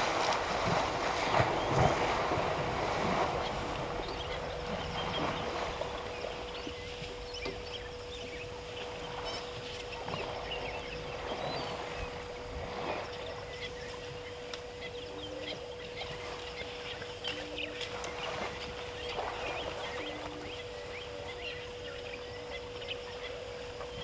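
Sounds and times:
elephants splashing through water: 0.0s - 7.3s
steady hum: 0.0s - 24.0s.

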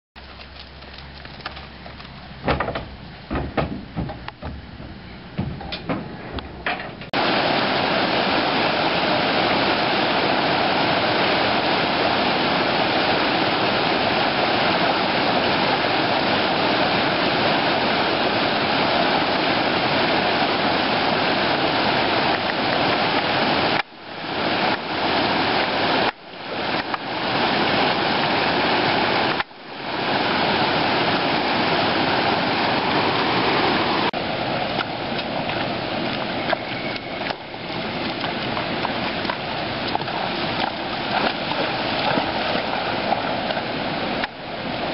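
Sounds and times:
creek water rushing over ford: 7.0s - 44.9s.

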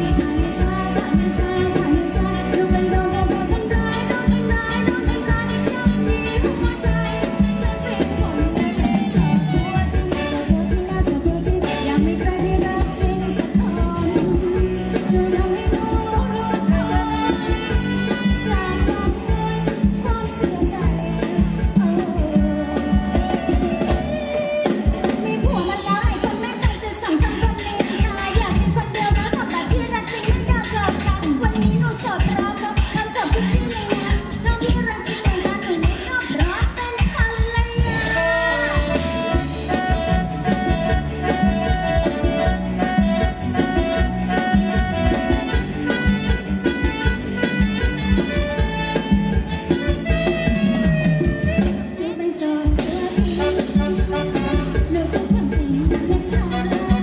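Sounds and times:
live band playing dance music: 0.0s - 57.0s
steady drum beat: 33.5s - 51.8s.

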